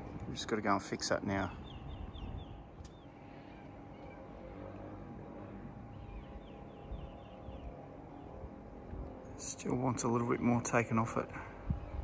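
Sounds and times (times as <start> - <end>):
low steady rumble: 0.0 - 12.0
bird chirping: 1.5 - 4.4, 5.8 - 8.4.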